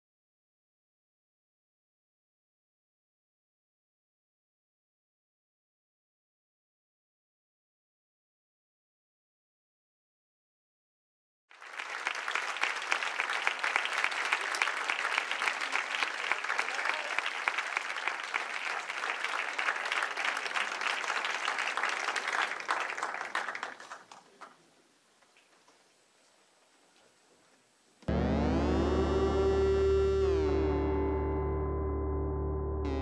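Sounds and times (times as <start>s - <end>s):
audience applauding: 11.6s - 24.6s.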